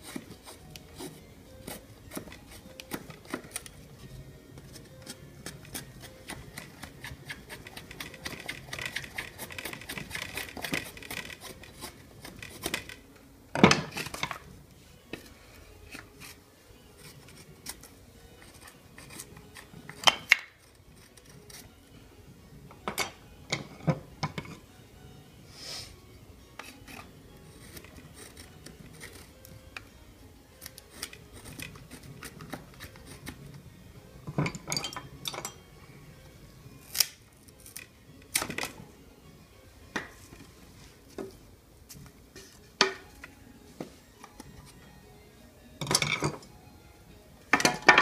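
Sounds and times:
knife scraping wooden stick: 0.0s - 3.8s, 4.7s - 13.0s, 15.9s - 16.4s, 17.0s - 19.7s, 26.6s - 29.4s, 30.6s - 33.4s.

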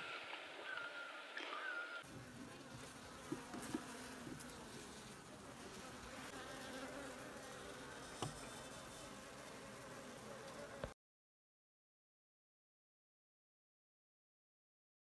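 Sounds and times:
honeybees buzzing: 0.0s - 11.0s.

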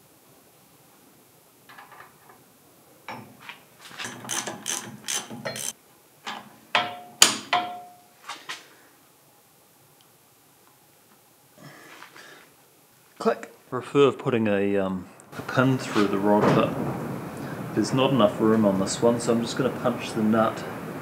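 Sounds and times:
ratchet wrench clicking: 4.0s - 5.8s
sharp metallic clinks: 4.2s - 5.8s, 6.8s - 8.1s.

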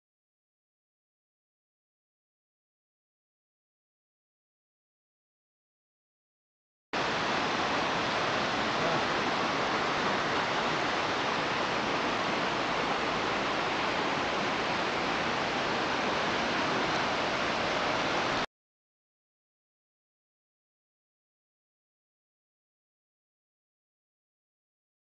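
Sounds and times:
rushing stream and waterfall: 7.0s - 18.5s.

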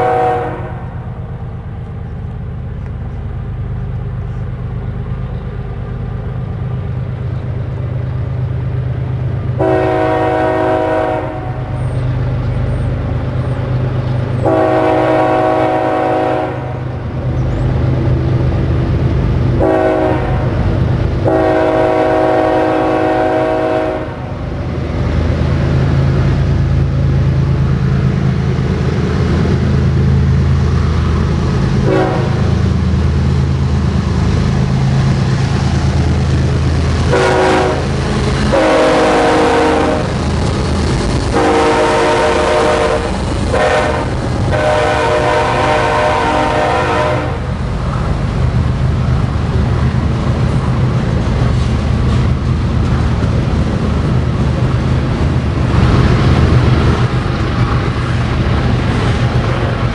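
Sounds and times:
train horn blasts: 0.0s - 1.0s, 9.6s - 11.8s, 14.4s - 16.9s, 19.6s - 20.6s, 21.2s - 24.4s, 31.8s - 32.5s, 37.0s - 40.2s, 41.3s - 47.5s
locomotive engine drone: 0.0s - 59.9s.

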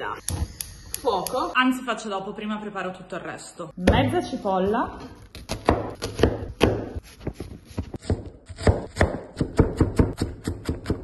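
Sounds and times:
knife chopping on wooden board: 5.3s - 11.0s.

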